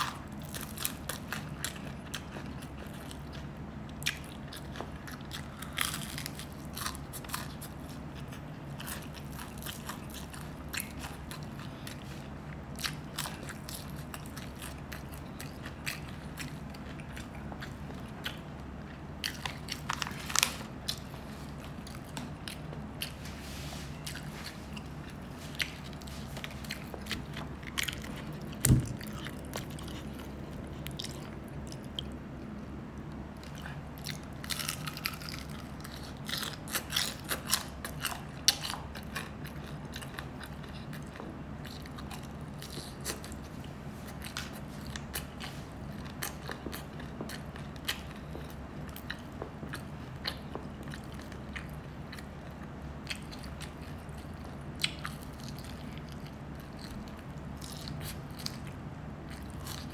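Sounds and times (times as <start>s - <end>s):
person chewing crunchy food: 0.0s - 59.9s
heavy thump: 28.6s - 29.0s.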